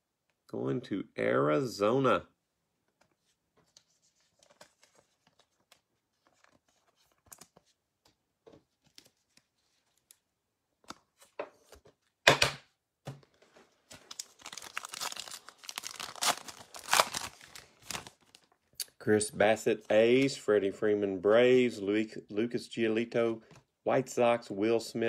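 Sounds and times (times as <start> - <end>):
card clicks and rustles: 2.9 - 12.2, 13.0 - 18.6
foil wrapper tearing and crinkling: 13.9 - 18.5.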